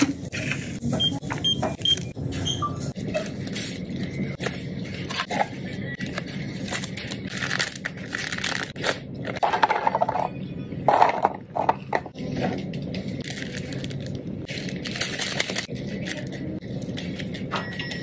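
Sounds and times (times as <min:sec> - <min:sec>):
plastic packaging crinkling: 0:06.1 - 0:09.4, 0:13.2 - 0:17.5.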